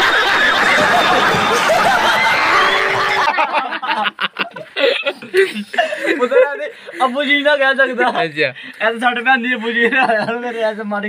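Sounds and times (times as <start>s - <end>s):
audience laughing and clapping: 0.0s - 6.4s
men laughing: 0.0s - 8.8s, 9.4s - 10.8s.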